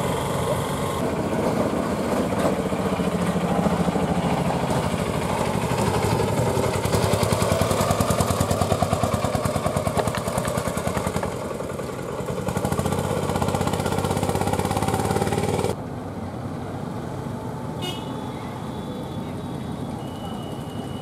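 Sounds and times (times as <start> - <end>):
small engine running hard: 0.0 - 15.8
traffic engine noise: 0.0 - 21.0
vehicle horn toot: 17.8 - 21.0.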